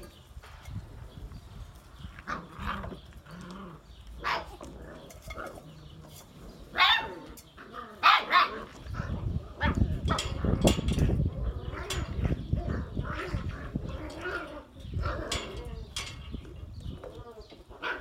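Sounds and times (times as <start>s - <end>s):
puppies barking and yapping: 1.8s - 18.0s.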